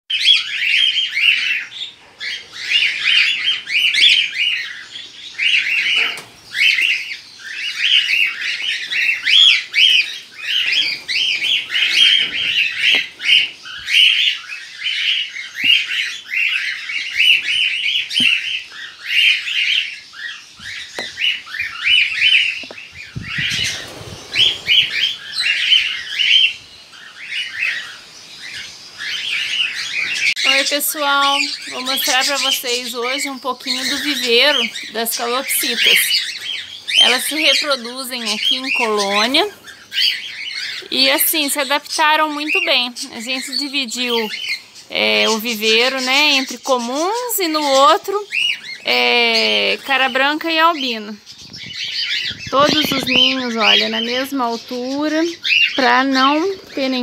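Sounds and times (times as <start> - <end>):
birds chirping and squawking: 0.1 - 57.0
rustling: 20.7 - 26.2.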